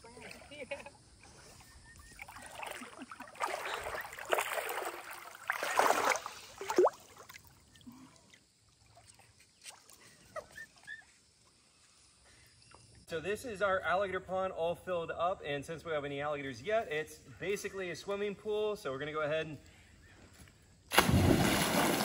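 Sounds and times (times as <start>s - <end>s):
water splashing and swishing: 1.2s - 10.3s, 20.9s - 22.0s.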